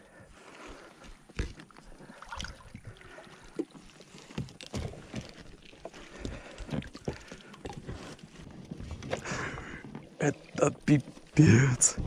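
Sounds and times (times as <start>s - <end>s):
water splashing: 0.5s - 12.0s.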